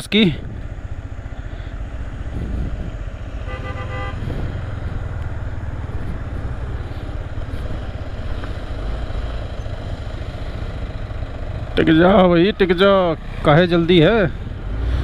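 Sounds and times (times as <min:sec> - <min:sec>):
motorcycle engine running: 0:00.1 - 0:14.8
vehicle horn honk: 0:03.4 - 0:04.4.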